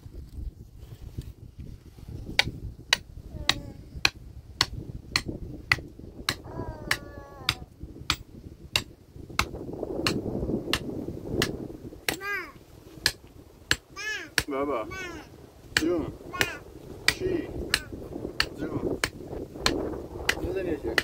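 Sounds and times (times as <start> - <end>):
hammering: 2.4 - 10.8, 15.7 - 21.0.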